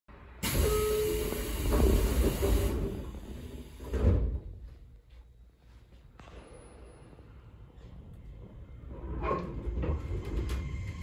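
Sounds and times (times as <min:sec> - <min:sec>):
train doors sliding: 0:00.4 - 0:04.6.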